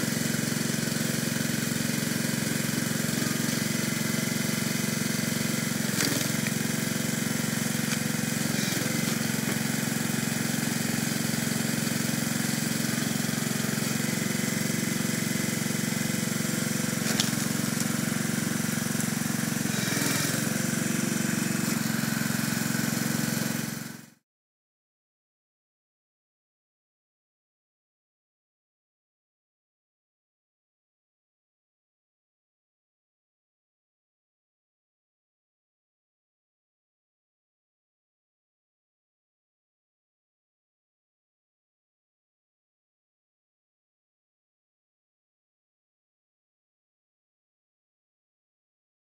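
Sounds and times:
small gasoline engine running: 0.0 - 24.2
log cracking: 6.0 - 6.6, 17.0 - 18.0.

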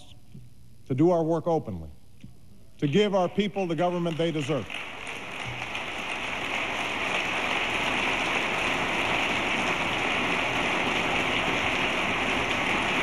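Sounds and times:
crowd applauding: 4.1 - 13.0.

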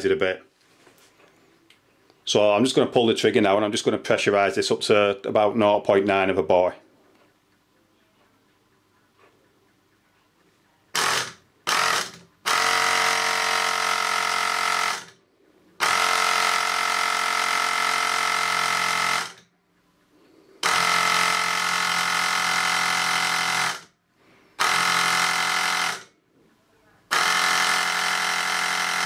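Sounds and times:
air pump compressor running: 10.9 - 15.2, 15.8 - 19.4, 20.2 - 26.1, 27.1 - 29.0.

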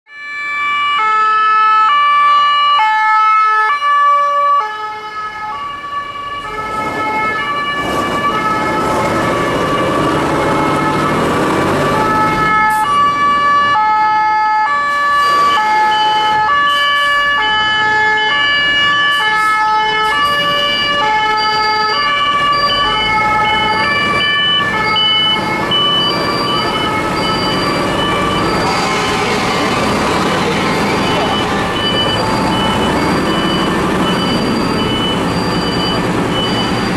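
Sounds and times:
two-tone fire engine sirens: 0.1 - 36.9
heavy vehicle passing: 6.0 - 13.9, 22.1 - 36.9.

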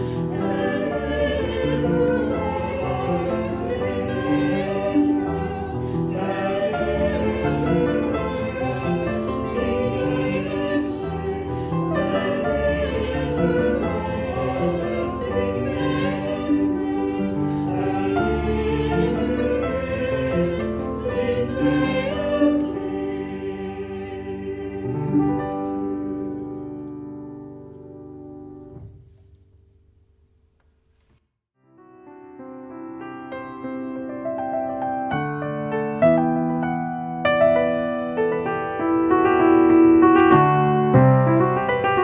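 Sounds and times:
choir singing a sacred song: 0.0 - 26.2
music: 0.0 - 42.0.

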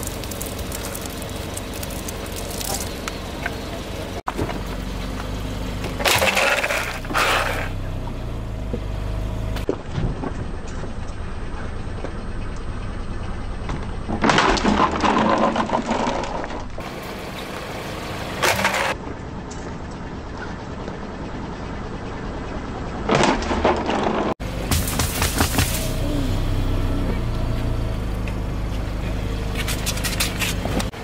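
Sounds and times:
plastic crunching and cracking: 0.0 - 3.0
car engine humming: 0.0 - 14.4, 16.4 - 31.0.

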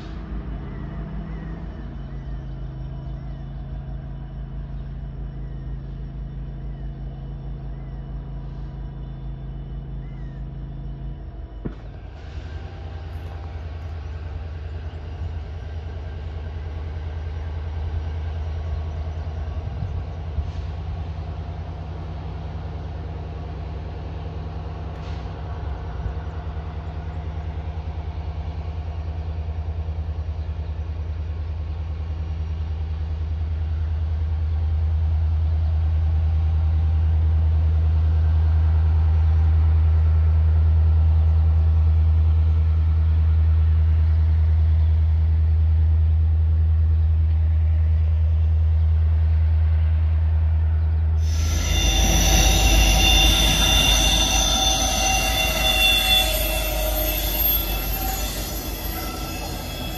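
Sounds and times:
train wheels squealing on rail: 0.0 - 32.0, 51.2 - 59.9
diesel locomotive engine drone: 0.0 - 59.9.

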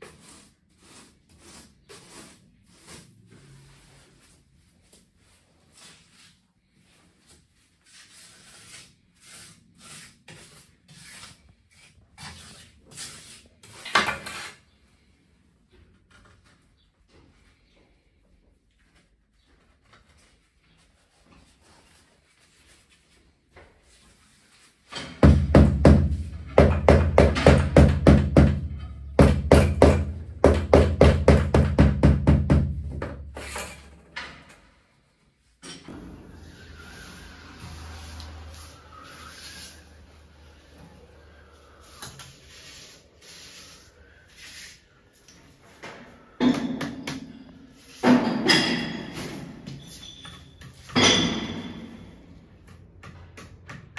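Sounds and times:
trowel scraping wet mortar: 0.0 - 3.6, 7.8 - 14.7.

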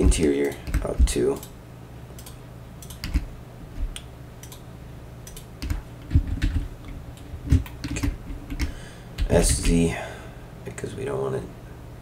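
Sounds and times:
keyboard keys clicking: 2.2 - 4.6, 5.3 - 6.7, 7.5 - 9.8.

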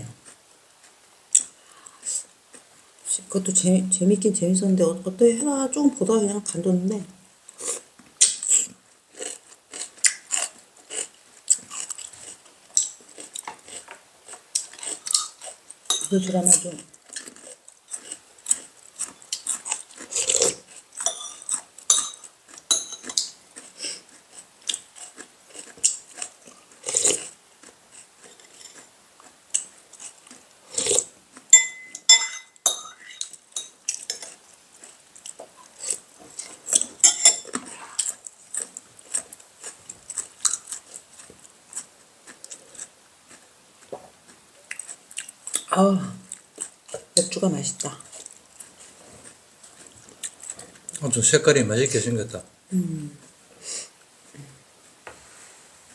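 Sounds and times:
spoons clinking on ceramic bowls: 15.9 - 16.3, 21.0 - 23.2, 31.5 - 33.8, 37.0 - 37.6.

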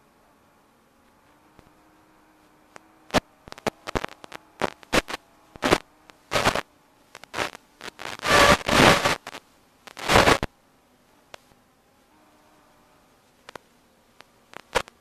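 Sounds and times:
faint steady hum: 0.0 - 15.0
crackling radio static: 1.4 - 10.6, 11.2 - 11.6, 13.3 - 15.0.

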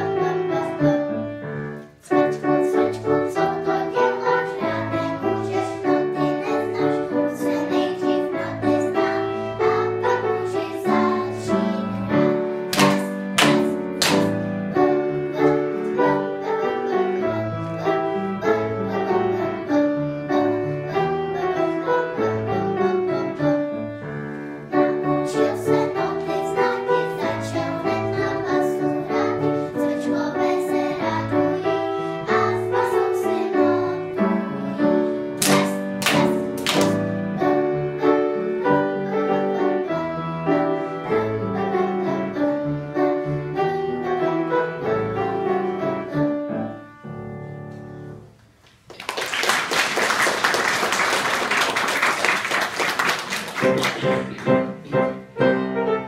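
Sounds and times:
piano accompaniment: 0.0 - 56.0
girls singing together: 2.1 - 14.4, 25.2 - 42.7.

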